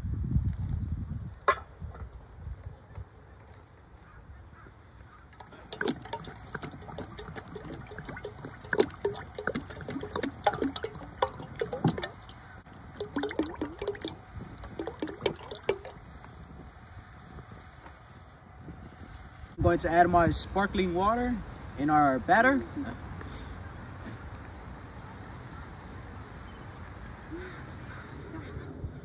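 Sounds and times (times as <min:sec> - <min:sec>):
oil pouring into metal pot: 0:05.4 - 0:16.0.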